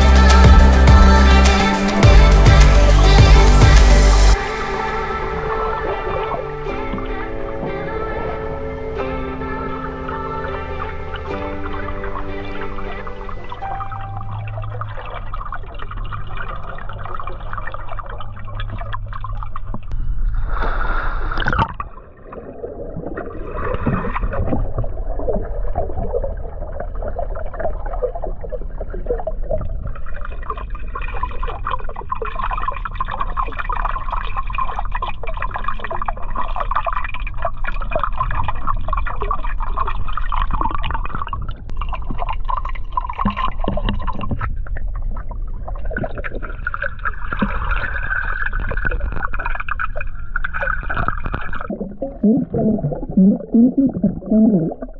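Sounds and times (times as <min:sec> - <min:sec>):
low underwater rumble: 0:00.0 - 0:54.9
underwater gurgling and bubbling: 0:04.4 - 0:54.9.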